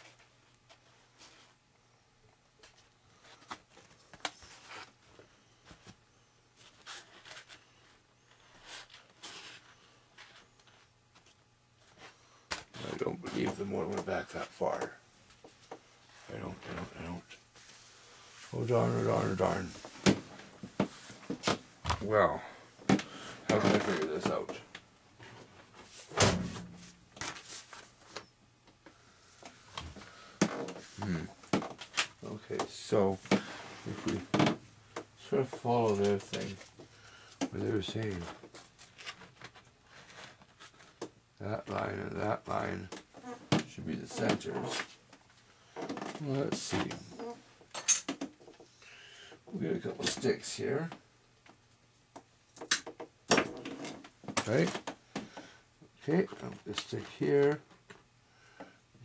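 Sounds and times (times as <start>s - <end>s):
knocks and rustles of handling: 6.6s - 48.7s.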